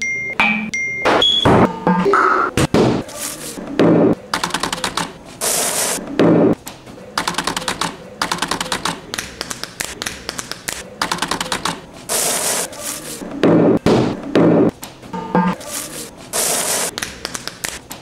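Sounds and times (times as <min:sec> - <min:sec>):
heavy thumps: 0:13.4 - 0:14.8.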